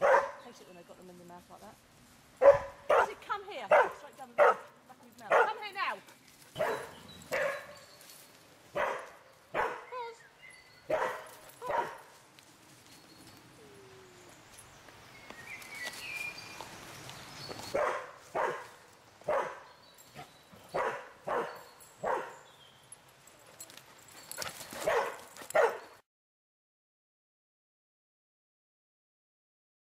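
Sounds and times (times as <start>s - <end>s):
dog barking: 0.0s - 0.4s, 2.4s - 5.6s, 6.6s - 7.8s, 8.7s - 10.1s, 10.9s - 12.1s, 17.7s - 19.7s, 20.7s - 22.4s, 24.8s - 26.0s
faint bird chirps: 9.8s - 11.0s.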